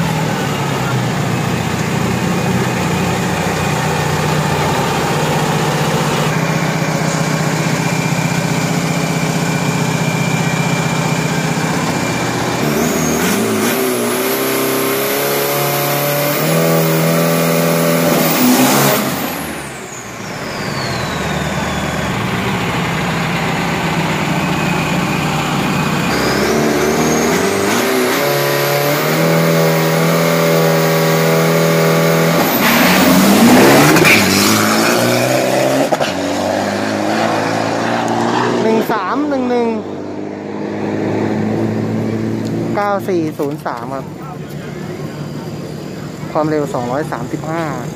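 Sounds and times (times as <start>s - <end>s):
diesel engine idling and revving: 0.0s - 47.9s
turbo high whistle: 18.0s - 22.4s, 26.1s - 28.8s.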